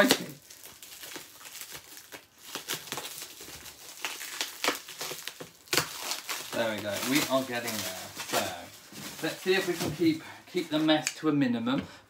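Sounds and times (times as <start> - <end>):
scissors cutting plastic wrap: 0.0 - 8.6
plastic crinkling: 0.0 - 11.2.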